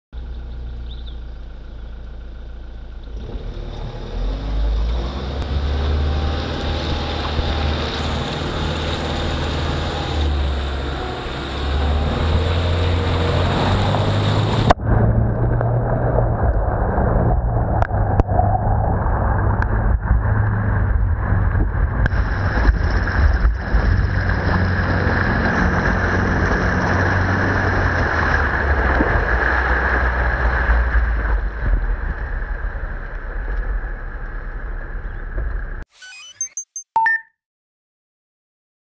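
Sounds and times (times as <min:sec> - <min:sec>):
engine rumble: 0:00.1 - 0:35.8
tyre splashing through muddy water: 0:22.1 - 0:32.2.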